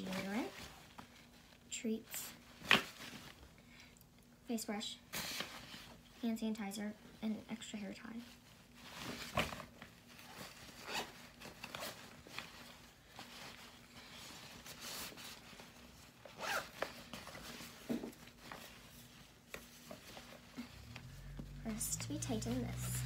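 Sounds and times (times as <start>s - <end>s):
cloth bag rustling: 8.3s - 21.8s
sharp fabric scrapes: 10.2s - 17.7s.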